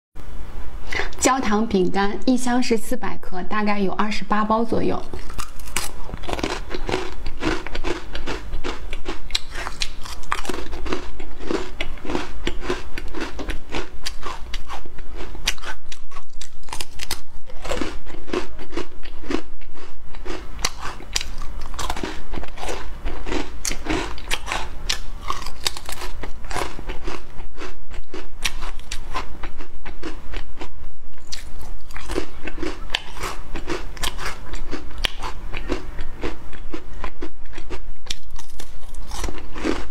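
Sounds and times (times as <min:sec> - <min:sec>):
biscuits crunching: 0:05.1 - 0:30.5, 0:31.2 - 0:39.9.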